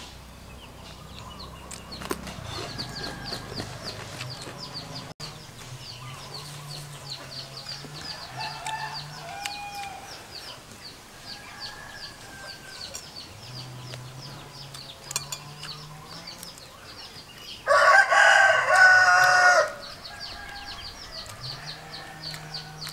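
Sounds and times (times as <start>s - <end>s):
rooster crowing: 2.4s - 4.7s, 7.9s - 10.2s, 11.2s - 13.1s, 17.6s - 22.9s.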